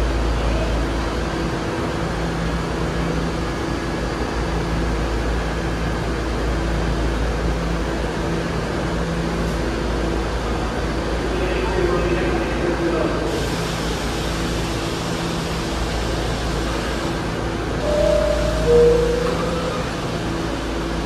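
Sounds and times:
subway car air conditioning hum: 0.0s - 21.0s
low drone: 17.8s - 21.0s.

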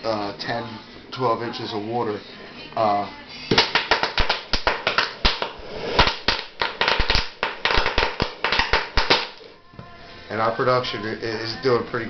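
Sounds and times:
gas bubbles popping and cracking: 3.6s - 9.6s.

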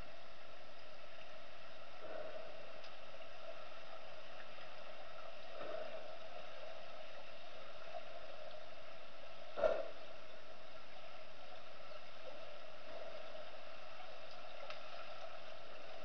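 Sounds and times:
underwater hum and hiss: 0.0s - 16.0s.

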